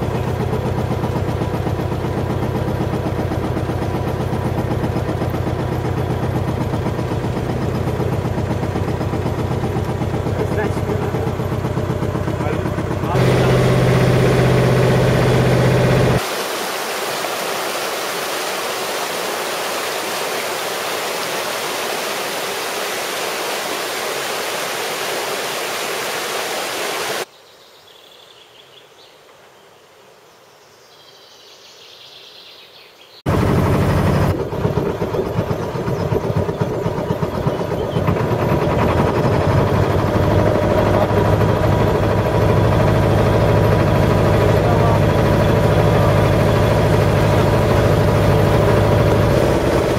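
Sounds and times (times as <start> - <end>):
boat engine running: 0.0 - 27.3, 33.3 - 49.9
steady rushing hiss: 13.1 - 27.3.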